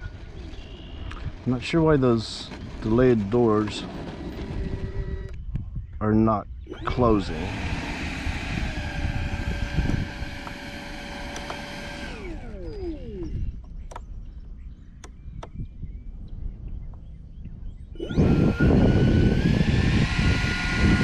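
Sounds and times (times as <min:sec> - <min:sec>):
electric ducted fan whining: 0:00.0 - 0:21.0
sharp clicks: 0:09.8 - 0:14.1, 0:15.0 - 0:15.6.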